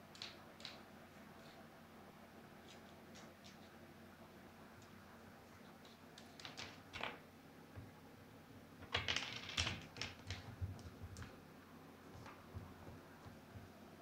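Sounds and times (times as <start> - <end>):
cat pawing objects clicking: 8.8 - 11.4.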